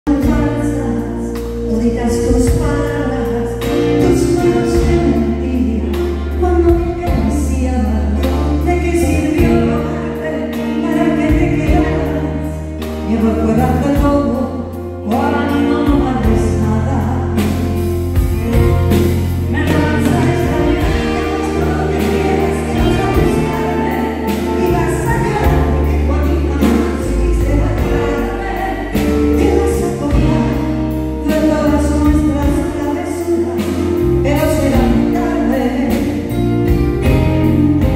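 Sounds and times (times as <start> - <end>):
band playing: 0.0 - 37.9
woman singing a ballad: 0.1 - 18.7, 19.4 - 37.9.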